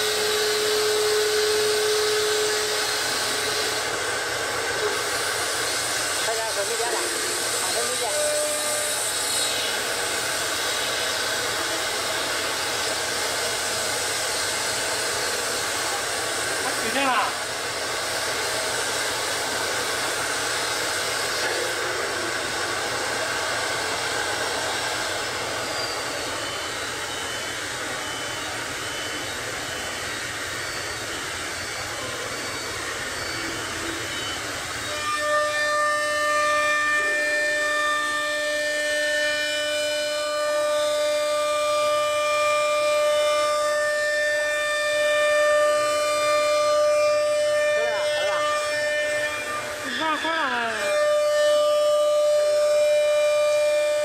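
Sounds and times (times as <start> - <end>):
router spindle whine: 0.0 - 54.0
bit cutting board: 47.7 - 51.0.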